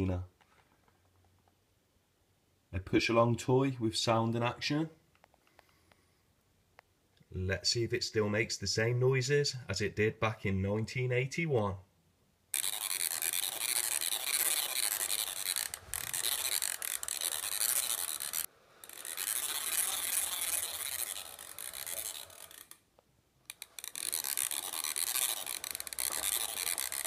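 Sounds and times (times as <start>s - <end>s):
toy vacuum cleaner rasping whirr: 12.6s - 22.8s, 23.5s - 27.0s.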